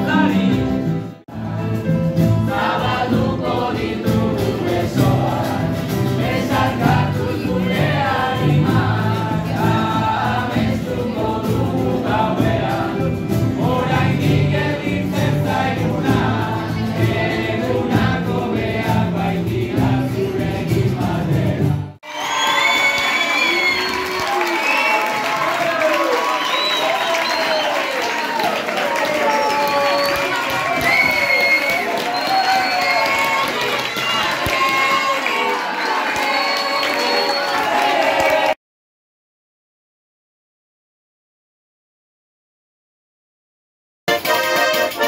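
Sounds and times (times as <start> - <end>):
acoustic guitars: 0.0 - 22.0
young voices singing together: 1.3 - 21.8
people clapping: 22.0 - 38.6.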